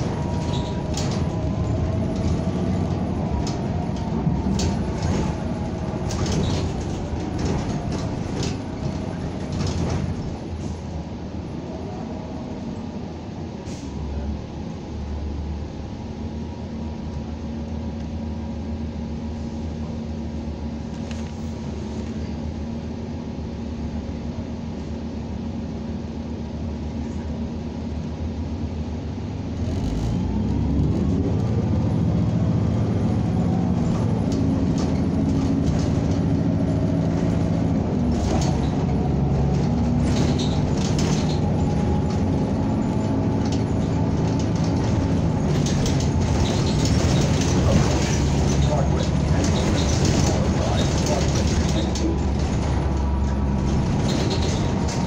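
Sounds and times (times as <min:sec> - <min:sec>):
bus body rattling: 0:00.0 - 0:14.3, 0:29.0 - 0:55.0
bus engine: 0:00.0 - 0:55.0.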